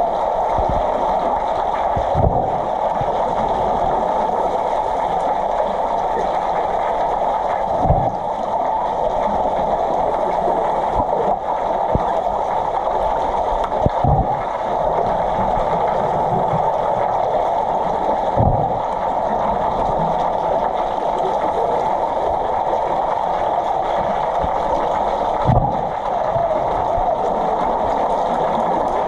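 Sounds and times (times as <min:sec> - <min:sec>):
muffled underwater rushing: 0:00.0 - 0:29.0
dull low thumps: 0:18.4 - 0:18.8.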